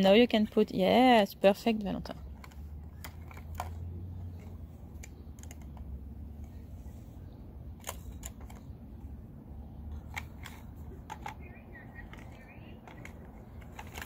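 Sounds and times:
low steady hum: 0:00.0 - 0:14.0
plastic toy pieces clicking: 0:02.4 - 0:05.9, 0:10.0 - 0:11.4, 0:12.1 - 0:14.0.

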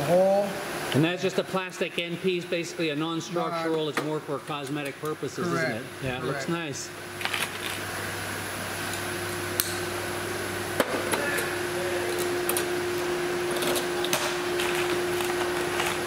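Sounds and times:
steady shop hum: 0:00.0 - 0:16.0.

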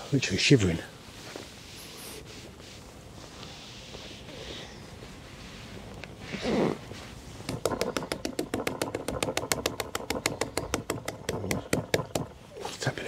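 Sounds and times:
fingers tapping on fishing pole: 0:07.5 - 0:12.3.

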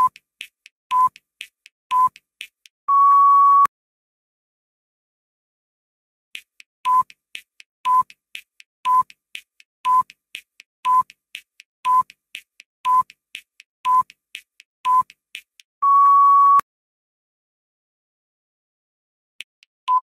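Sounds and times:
countdown timer ticks and beeps: 0:00.0 - 0:03.7, 0:06.4 - 0:16.6, 0:19.4 - 0:20.0
long steady beep: 0:02.9 - 0:03.7, 0:15.8 - 0:16.6.

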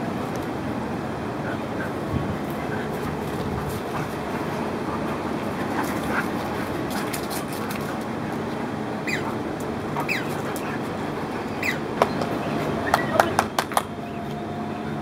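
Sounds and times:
dogs yipping: 0:01.5 - 0:08.0, 0:09.0 - 0:14.2.

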